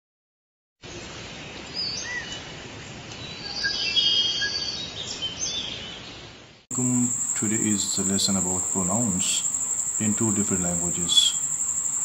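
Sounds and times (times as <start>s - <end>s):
birds chirping and whistling: 1.8s - 2.5s, 3.2s - 6.3s
insects hissing: 6.7s - 12.0s.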